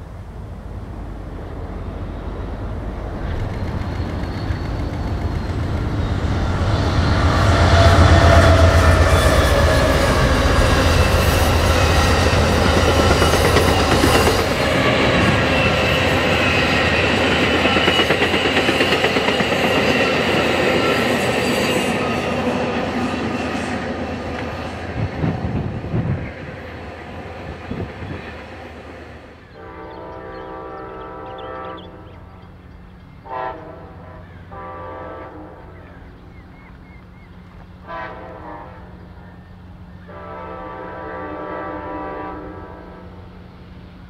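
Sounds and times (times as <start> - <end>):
low locomotive rumble: 0.0 - 44.0
train wheel clatter: 3.1 - 28.7
high wheel squeal: 3.2 - 23.9.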